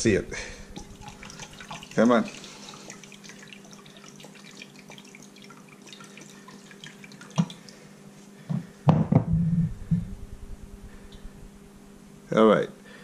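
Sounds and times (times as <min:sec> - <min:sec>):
liquid dripping into cup: 0:00.5 - 0:07.8
knock: 0:08.5 - 0:10.1.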